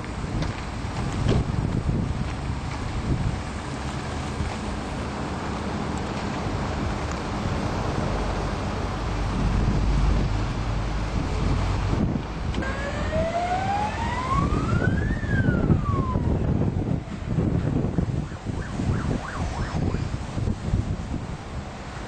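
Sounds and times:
wind on microphone: 0:00.0 - 0:22.0
rising machine whine: 0:12.5 - 0:16.4.

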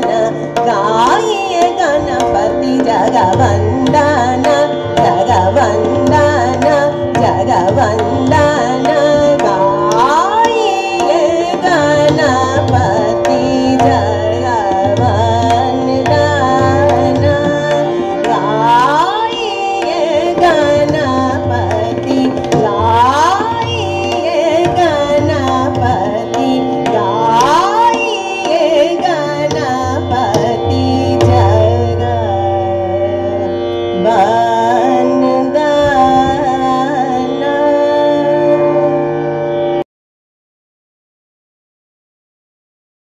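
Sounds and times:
woman singing classical vocals: 0:00.0 - 0:33.2, 0:33.9 - 0:39.0
harmonium drone and melody: 0:00.0 - 0:39.9.

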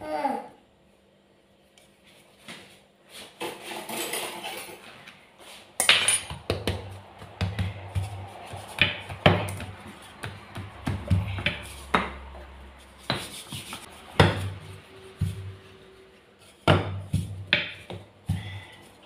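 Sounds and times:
utensils clinking: 0:03.7 - 0:04.8
rolling pin on wooden board: 0:06.3 - 0:15.6, 0:16.4 - 0:18.6.

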